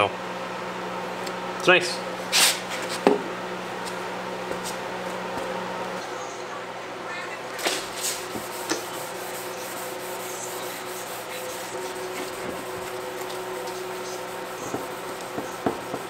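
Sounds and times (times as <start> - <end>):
wet sanding of plastic: 8.0 - 16.0.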